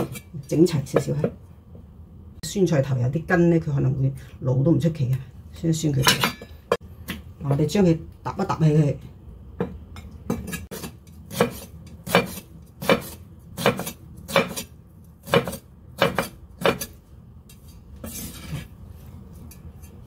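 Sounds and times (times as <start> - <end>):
blade scraping across board: 18.0 - 19.2.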